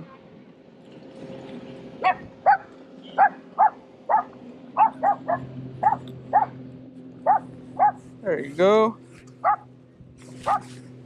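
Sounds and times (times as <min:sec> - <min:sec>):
dog yelping: 0:02.0 - 0:06.6, 0:07.2 - 0:08.0, 0:09.4 - 0:09.6, 0:10.4 - 0:10.7.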